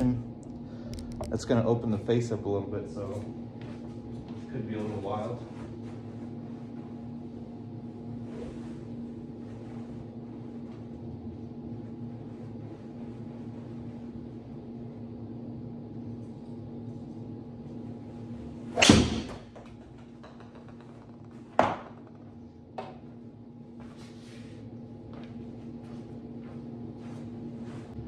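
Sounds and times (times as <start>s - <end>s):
steady low hum: 0.0s - 28.0s
golf driver hitting ball: 18.8s - 19.5s
ball hitting screen: 18.8s - 22.1s.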